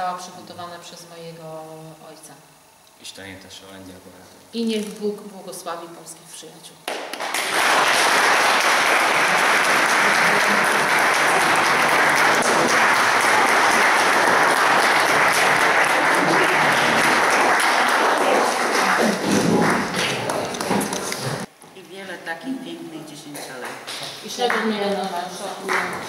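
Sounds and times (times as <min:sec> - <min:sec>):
audience applauding: 0:06.9 - 0:21.5, 0:25.6 - 0:26.0.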